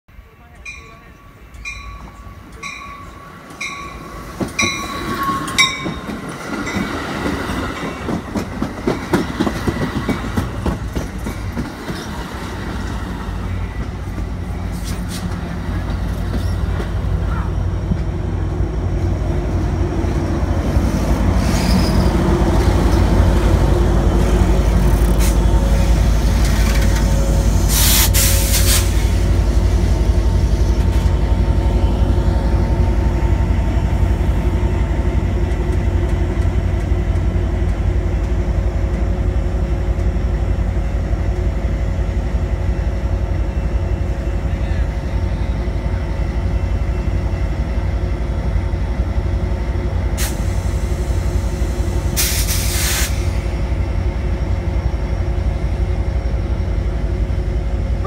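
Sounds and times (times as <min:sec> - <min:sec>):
diesel locomotive rumbling: 0:00.1 - 0:58.0
train bell ringing: 0:00.2 - 0:08.2
train wheels clacking and squealing: 0:00.6 - 0:18.1, 0:20.6 - 0:33.8
air hiss: 0:27.4 - 0:29.2, 0:50.2 - 0:53.6.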